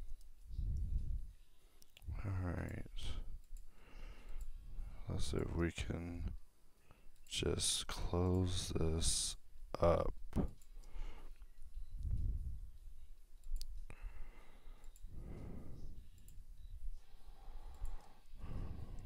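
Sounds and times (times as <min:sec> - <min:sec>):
breathing into microphone: 0:13.9 - 0:16.0, 0:17.0 - 0:19.0.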